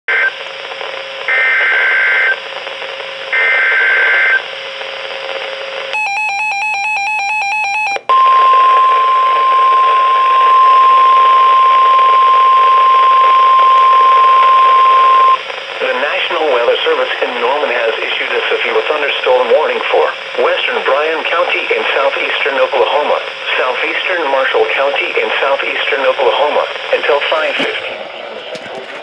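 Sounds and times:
radio hiss: 0.1s - 5.9s, 8.2s - 29.0s
steady warning alarm tone: 6.0s - 15.4s
rapid electronic beeping: 7.0s - 15.4s.

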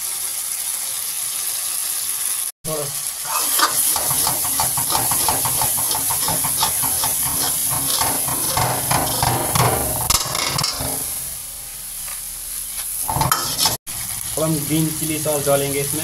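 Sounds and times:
meat sizzling in oil: 0.0s - 16.0s
spatula scraping a wok: 3.2s - 11.5s, 12.7s - 14.3s.

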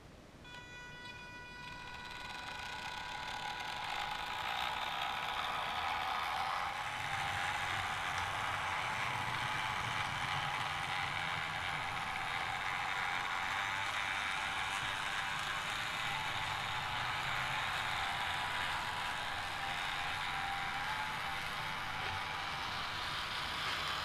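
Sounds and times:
small electric motor whirring: 0.5s - 24.0s.

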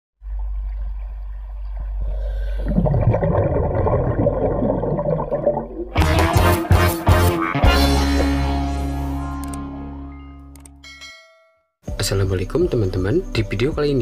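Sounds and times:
underwater bubbling and gurgling: 0.2s - 6.0s
music: 5.9s - 14.0s.

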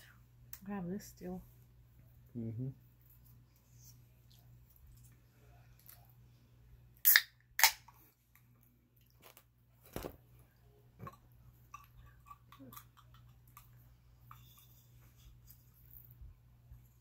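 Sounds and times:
can tab snapping open: 7.0s - 7.8s.

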